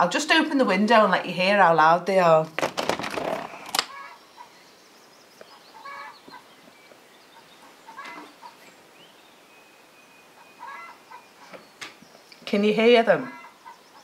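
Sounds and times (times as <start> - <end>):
hens calling: 3.3 - 4.6, 5.5 - 8.9, 10.2 - 11.7, 13.1 - 14.0.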